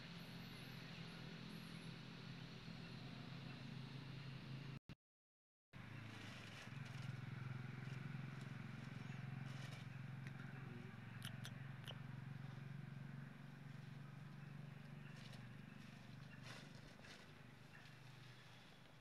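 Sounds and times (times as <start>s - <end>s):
dry leaves crackling: 5.8s - 10.5s, 12.1s - 19.0s.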